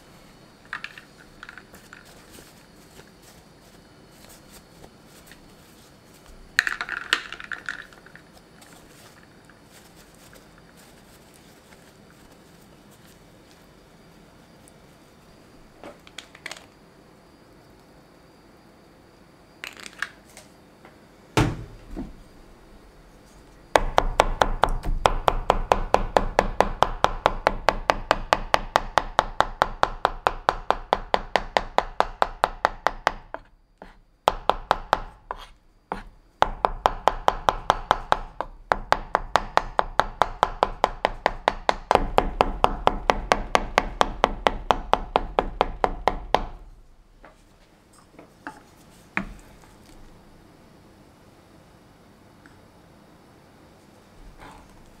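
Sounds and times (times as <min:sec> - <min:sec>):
knife chopping on plastic board: 0:23.8 - 0:46.6.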